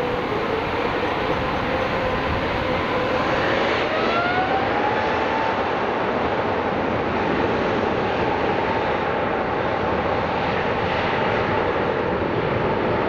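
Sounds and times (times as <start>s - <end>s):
thin engine whine: 0.0s - 5.9s
jet engine roar on takeoff: 0.0s - 13.0s.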